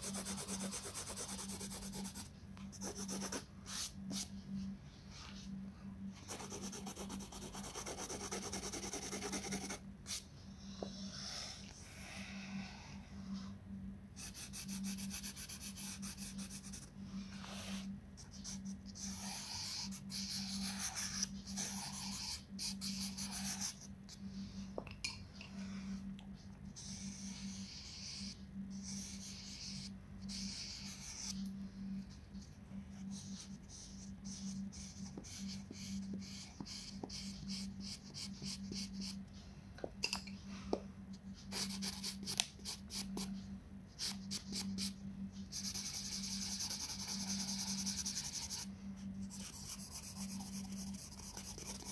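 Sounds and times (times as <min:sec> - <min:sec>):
pencil and crayon rubbing on paper: 0:00.0 - 0:04.3, 0:06.2 - 0:10.2, 0:14.2 - 0:23.9, 0:26.7 - 0:31.4, 0:32.9 - 0:39.2, 0:41.4 - 0:43.3, 0:44.0 - 0:51.9.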